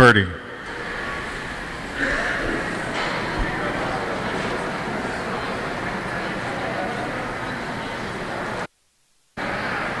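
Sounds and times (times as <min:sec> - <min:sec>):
indoor arena background noise: 0:00.0 - 0:10.0
faint murmur of spectators: 0:00.4 - 0:08.7, 0:09.4 - 0:10.0.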